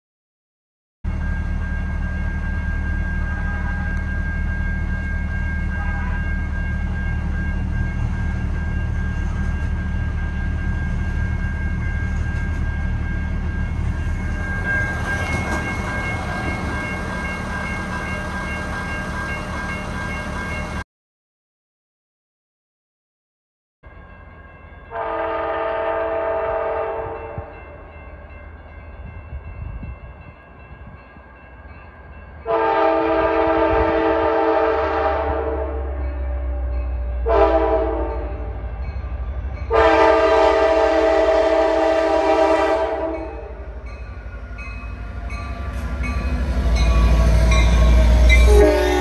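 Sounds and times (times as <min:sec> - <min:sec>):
train rumble passing: 0:01.1 - 0:20.8, 0:23.9 - 0:49.0
train air horn: 0:24.9 - 0:27.6, 0:32.5 - 0:38.6, 0:39.7 - 0:43.6, 0:47.8 - 0:49.0.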